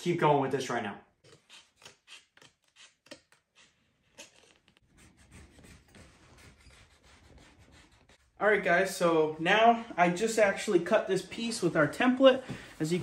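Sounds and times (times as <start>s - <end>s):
marker scratching on foam: 1.3s - 8.4s.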